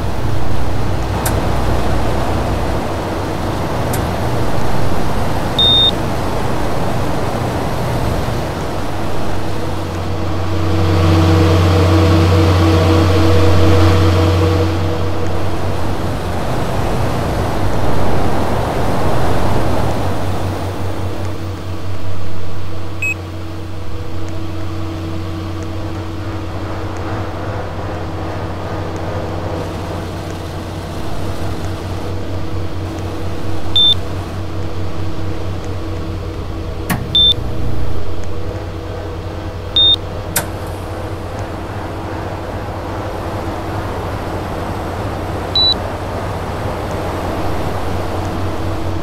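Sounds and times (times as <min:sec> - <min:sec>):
air conditioner humming: 0:00.0 - 0:49.0
short high beeps: 0:05.6 - 0:06.0, 0:37.2 - 0:37.4
sharp click: 0:36.9 - 0:37.4.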